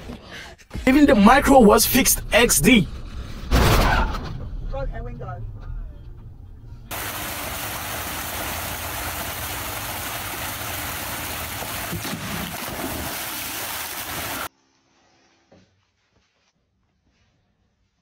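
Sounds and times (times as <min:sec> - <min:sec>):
loud rushing hiss: 0:06.9 - 0:12.0.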